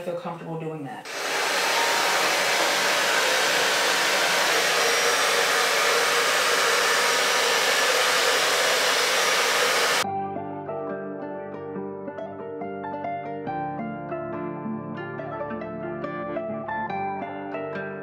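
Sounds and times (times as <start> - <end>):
hair dryer running: 1.1 - 10.0.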